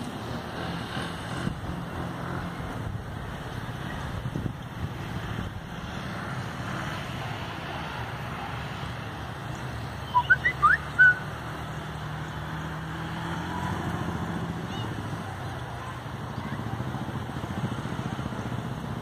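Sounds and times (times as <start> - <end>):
distant engine droning: 0.0 - 19.0
short high rising chirps: 10.0 - 11.3.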